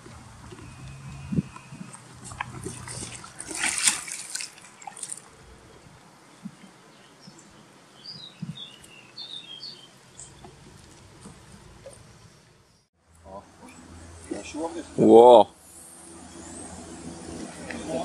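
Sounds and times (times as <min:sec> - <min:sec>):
water dripping: 0:00.4 - 0:05.5
fish splashing in water: 0:00.6 - 0:05.6.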